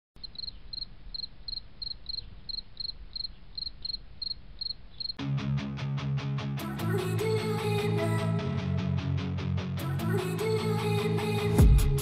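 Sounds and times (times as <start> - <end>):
cricket chirping: 0.2 - 5.2.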